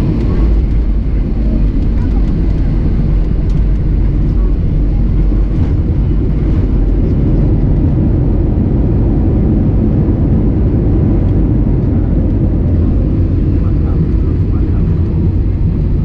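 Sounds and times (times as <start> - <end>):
airplane cabin rumble: 0.0 - 16.0.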